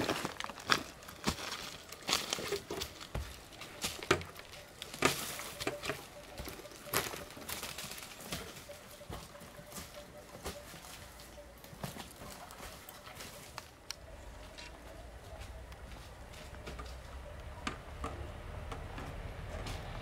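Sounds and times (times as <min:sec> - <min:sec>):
footsteps crunching through leaves: 0:00.0 - 0:13.8.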